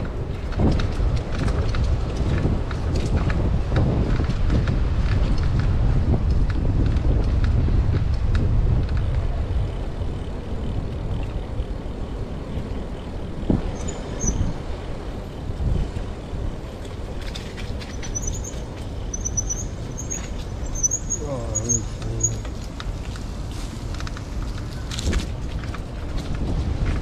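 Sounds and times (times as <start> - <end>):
traffic rumble: 0.0 - 27.0
wind: 0.0 - 27.0
small birds chirping: 17.9 - 22.4.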